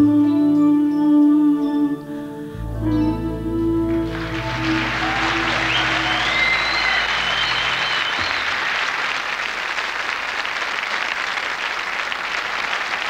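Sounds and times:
sustained music chord: 0.0s - 8.0s
studio audience applauding: 4.0s - 13.0s.

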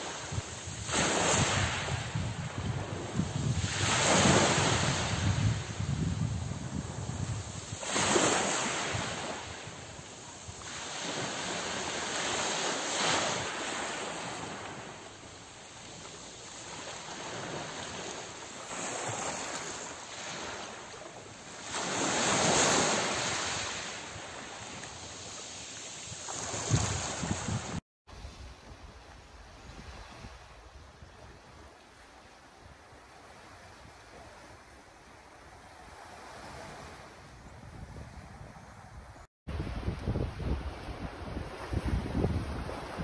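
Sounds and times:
waves on pebble beach: 0.0s - 28.4s.

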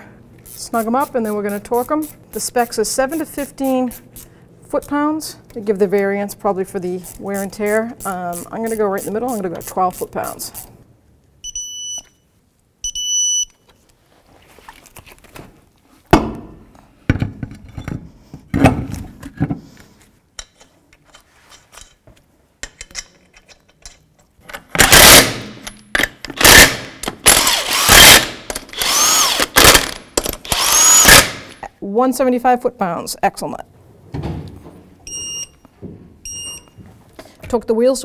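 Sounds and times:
short electronic beeps: 11.4s - 12.2s, 12.8s - 13.6s, 35.1s - 35.6s, 36.2s - 36.8s
impact wrench bursts: 24.8s - 25.7s, 26.3s - 31.6s.

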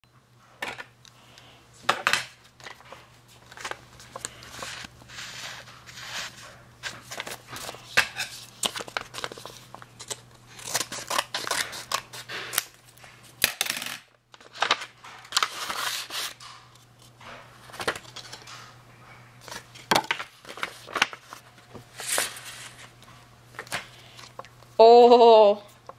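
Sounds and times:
paper rustling and crinkling: 2.5s - 13.3s, 14.4s - 18.7s, 19.4s - 24.6s.

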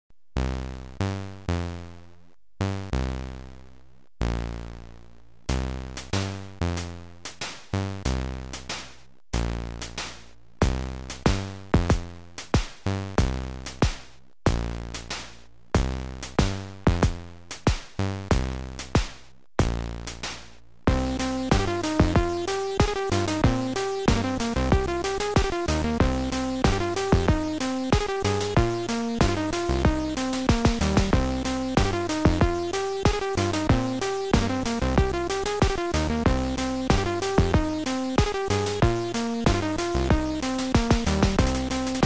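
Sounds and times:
electronic beat with sharp drum hits: 8.6s - 42.0s
deep synth bass notes: 20.9s - 42.0s.

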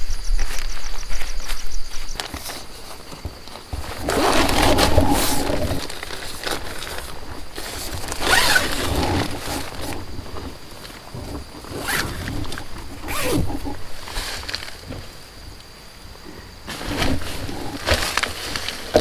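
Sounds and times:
nylon fabric rustling: 2.3s - 15.3s, 16.7s - 19.0s
tent door zipper being pulled: 3.8s - 15.0s, 16.7s - 19.0s.

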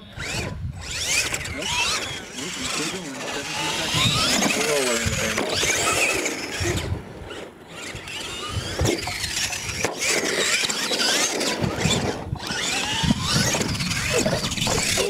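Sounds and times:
toy truck motor whining: 0.0s - 15.0s.

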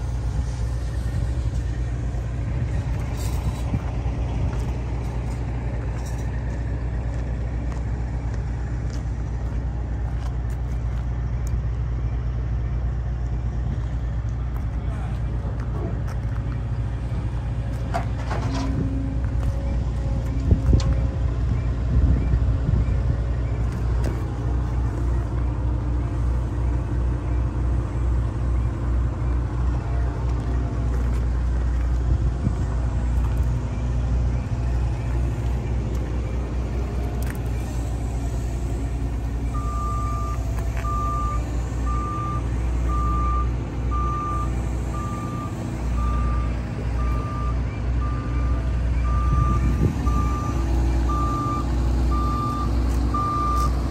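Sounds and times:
low pulsing rumble: 0.0s - 53.9s
reversing alarm beeping: 19.3s - 30.5s, 33.4s - 53.9s.

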